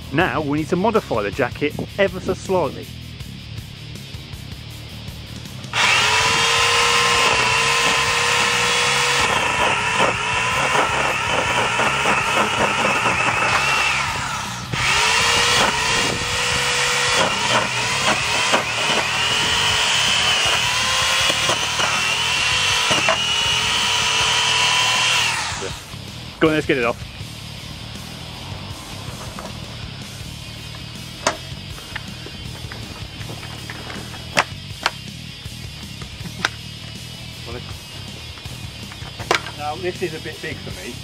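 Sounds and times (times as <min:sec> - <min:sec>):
electric chainsaw motor whine: 0:05.3 - 0:26.4.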